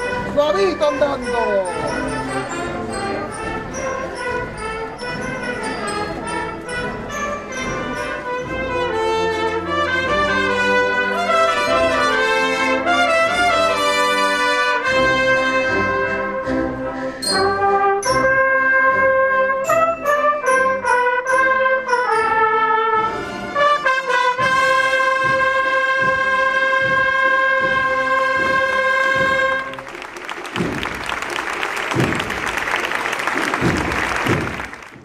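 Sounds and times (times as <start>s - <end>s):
brass melody: 0.0s - 35.0s
steady drum beat: 24.3s - 35.0s.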